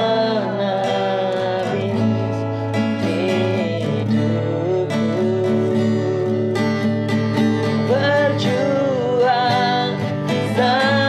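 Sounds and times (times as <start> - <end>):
strummed acoustic guitar: 0.0 - 11.0.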